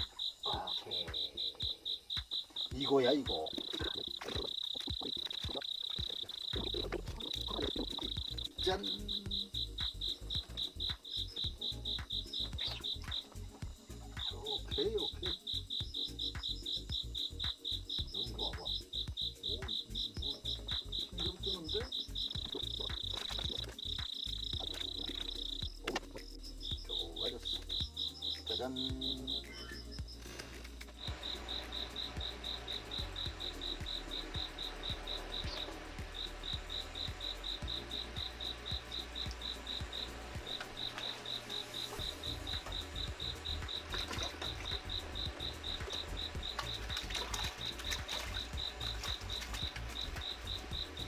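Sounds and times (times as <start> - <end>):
insects chirping: 0.0 - 51.0
low rumble with faint ticks: 4.8 - 41.1.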